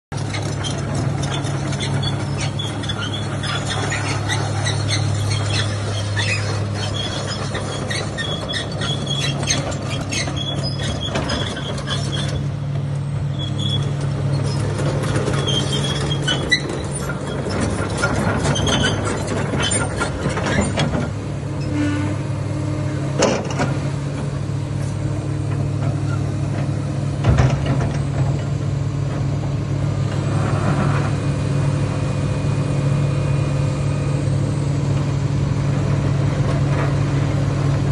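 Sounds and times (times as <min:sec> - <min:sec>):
excavator diesel engine running: 0:00.1 - 0:37.9
high squeaks and clicks: 0:00.2 - 0:12.5, 0:13.3 - 0:20.9.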